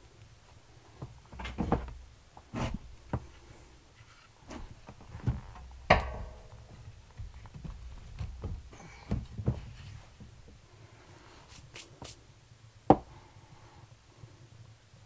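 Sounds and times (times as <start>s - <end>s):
kindling knocking and clattering: 1.0s - 3.3s, 4.5s - 10.4s
stove ringing: 5.4s - 8.6s.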